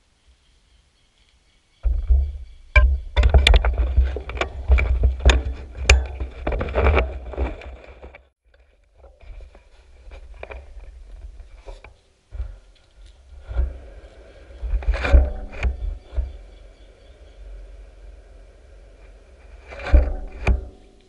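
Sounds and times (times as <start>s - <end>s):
scattered ticks and rubbing: 1.8s - 8.3s, 9.0s - 21.0s
heavy low rumble: 9.9s - 21.0s.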